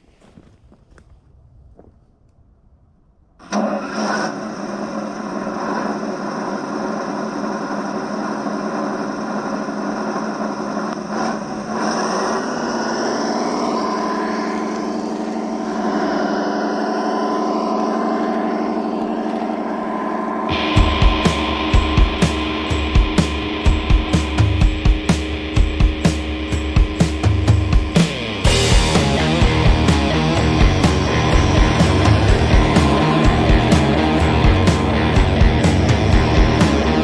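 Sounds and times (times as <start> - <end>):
simulated diesel engine through speaker: 3.4 - 37.0.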